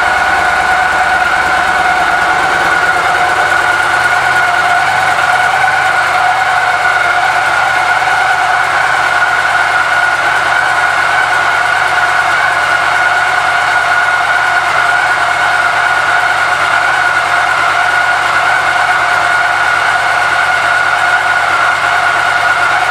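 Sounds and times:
motor running with high whine: 0:00.0 - 0:22.9.

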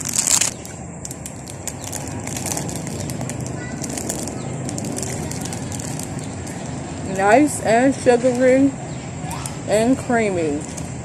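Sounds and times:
plastic bag crinkling: 0:00.0 - 0:07.3
low outdoor rumble: 0:00.0 - 0:11.0
bird chirp: 0:00.5 - 0:10.6.

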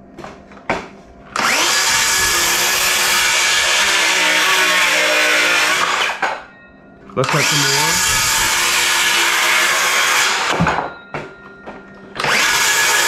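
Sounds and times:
circular saw cutting wood: 0:01.4 - 0:06.3, 0:07.2 - 0:10.6, 0:12.2 - 0:13.0.

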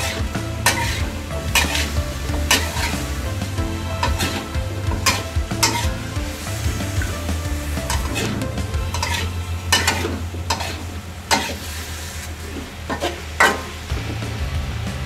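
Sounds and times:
metal spatula scraping wok: 0:00.0 - 0:13.8.

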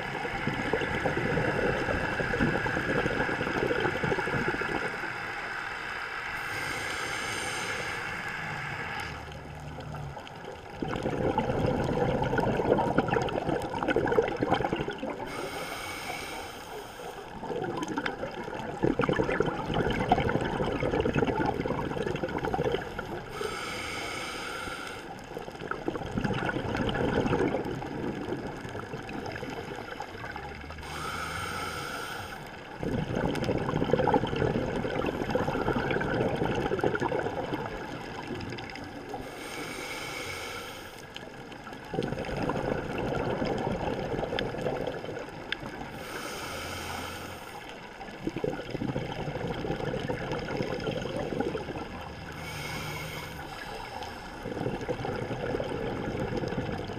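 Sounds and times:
exhaled bubbles rushing: 0:00.0 - 0:05.4, 0:06.3 - 0:15.6, 0:17.2 - 0:23.5, 0:25.2 - 0:31.2, 0:32.5 - 0:39.3, 0:41.1 - 0:46.2, 0:47.6 - 0:56.9
regulator inhale hiss: 0:03.9 - 0:09.5, 0:15.2 - 0:17.4, 0:23.2 - 0:25.3, 0:30.8 - 0:32.7, 0:39.1 - 0:41.3, 0:45.9 - 0:47.8, 0:52.2 - 0:54.8.

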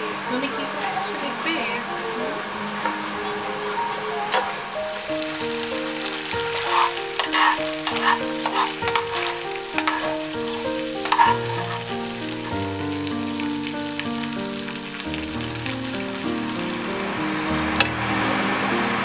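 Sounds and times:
instrumental music: 0:00.0 - 0:19.0
food sizzling in a frying pan: 0:02.4 - 0:19.0
utensil scraping a pan: 0:05.1 - 0:12.7.

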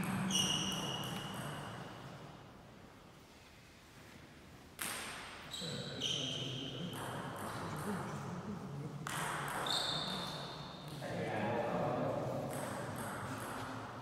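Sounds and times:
shoes squeaking: 0:00.0 - 0:01.9, 0:09.5 - 0:10.9
voices in a hall: 0:05.5 - 0:14.0.

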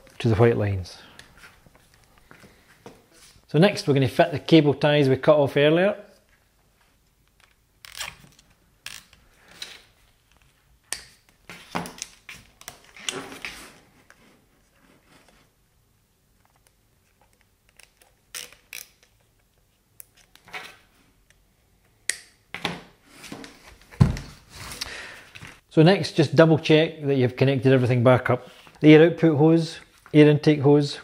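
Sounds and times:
cables and housing handled: 0:07.0 - 0:15.4
cable ties ratcheting zips: 0:07.3 - 0:09.2, 0:17.3 - 0:19.2.

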